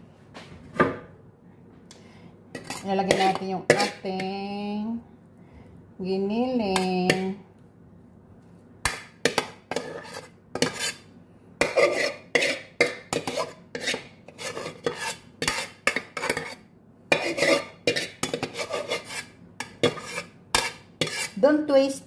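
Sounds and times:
metal spoon scraping a metal pot: 2.5s - 4.3s, 9.2s - 21.5s.

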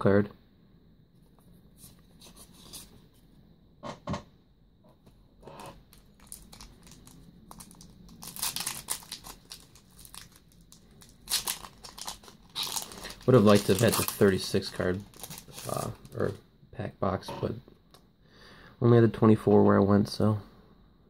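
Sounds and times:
foil wrapper crinkling and tearing: 5.9s - 16.4s.

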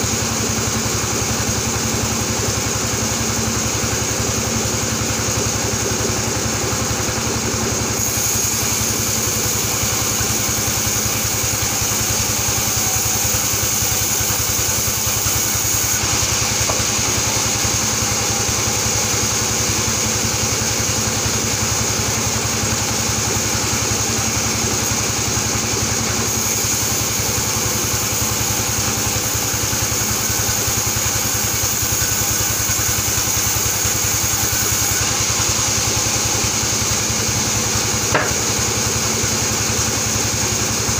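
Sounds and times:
band saw running: 0.0s - 40.9s.

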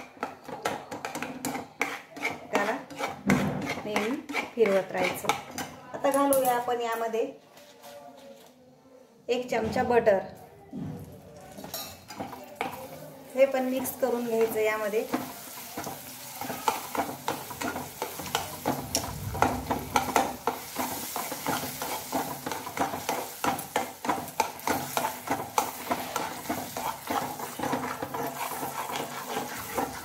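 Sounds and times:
spatula scraping metal pan: 0.0s - 5.7s, 13.8s - 30.0s
syrup sizzling: 11.6s - 30.0s.

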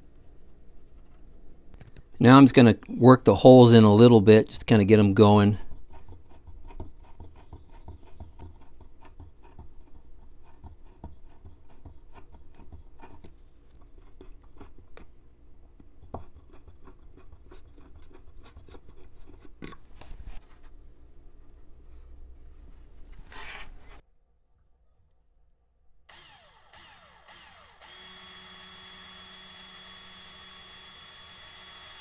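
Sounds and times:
hand drill scratching into wood: 23.3s - 24.0s, 26.1s - 32.0s.

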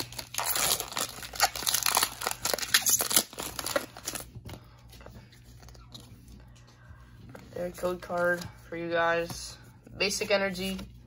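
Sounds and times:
foil wrapper crinkling and tearing: 0.0s - 4.3s.

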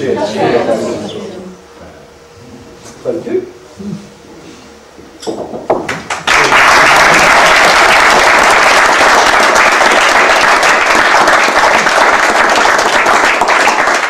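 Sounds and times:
crowd clapping and applauding: 5.8s - 14.0s.

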